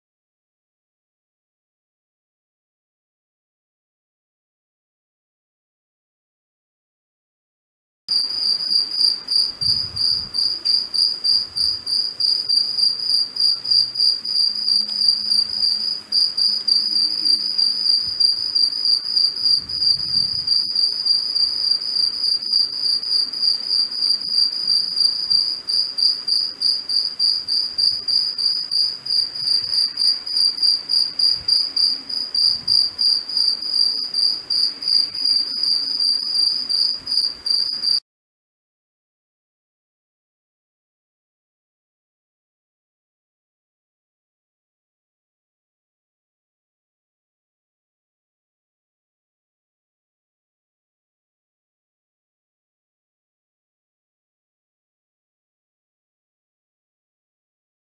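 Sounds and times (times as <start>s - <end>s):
cicada buzzing: 8.1s - 38.0s.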